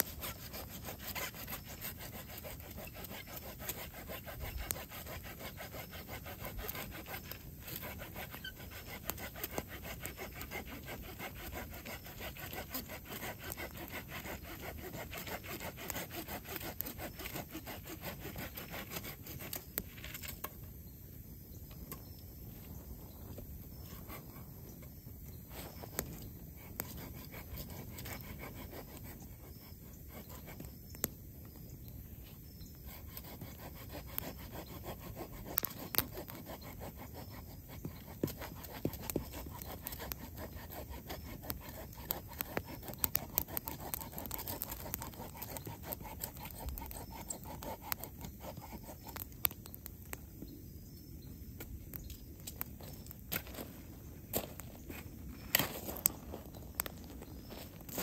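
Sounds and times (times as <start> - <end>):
blade scraping wooden branch: 0.0 - 20.6, 23.7 - 31.1, 32.7 - 49.8, 54.4 - 58.0.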